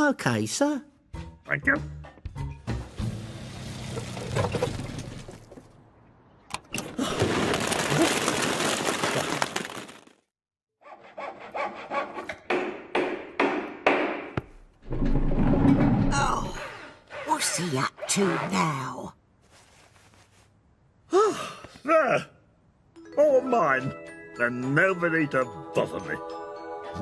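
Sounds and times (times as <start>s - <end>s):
cartoon sawing: 10.8s - 12.3s.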